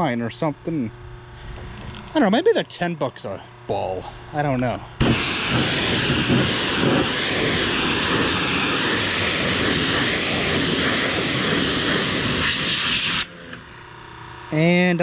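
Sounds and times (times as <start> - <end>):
pressure washer spraying metal: 5.0 - 13.3.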